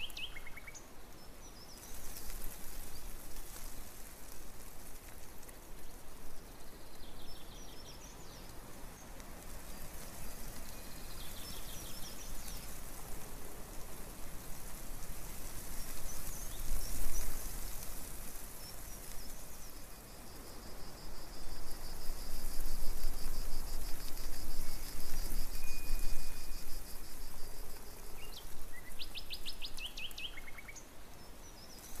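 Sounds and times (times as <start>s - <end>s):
bird singing: 0.0s - 1.9s, 6.5s - 9.1s, 28.2s - 32.0s
steady rushing hiss: 0.0s - 32.0s.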